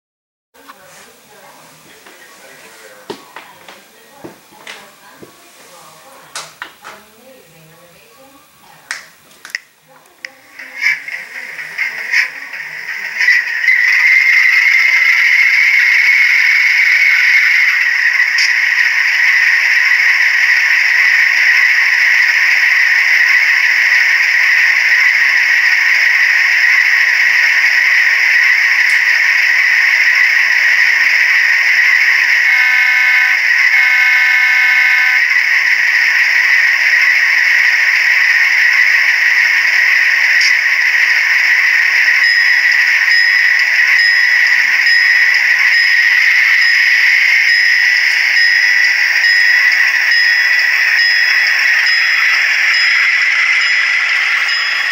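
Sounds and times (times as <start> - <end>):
diesel locomotive engine idling: 10.3 - 54.9
locomotive horn blasts: 32.4 - 35.2
locomotive bell ringing: 42.1 - 54.9.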